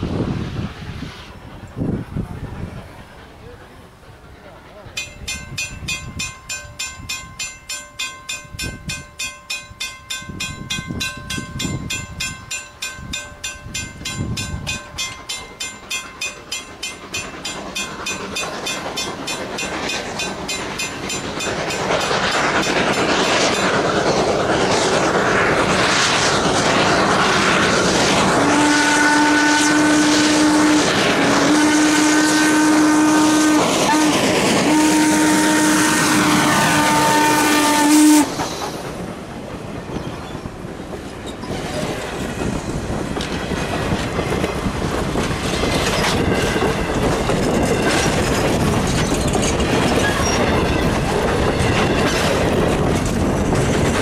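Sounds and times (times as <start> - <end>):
steam locomotive running: 0.0 - 54.0
bell ringing: 5.0 - 23.8
steam whistle blasts: 28.3 - 38.4.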